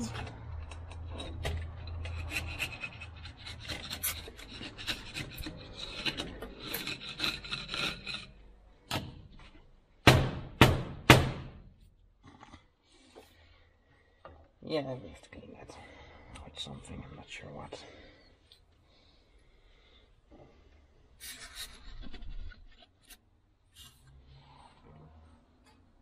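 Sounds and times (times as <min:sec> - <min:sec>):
loud knocks: 0:10.0 - 0:11.6.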